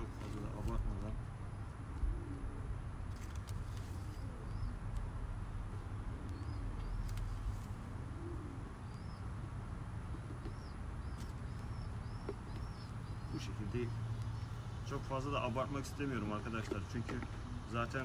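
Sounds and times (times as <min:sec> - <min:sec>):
small birds chirping: 0:00.0 - 0:18.0
pigeon cooing: 0:01.8 - 0:03.0, 0:03.9 - 0:04.9, 0:05.8 - 0:13.6.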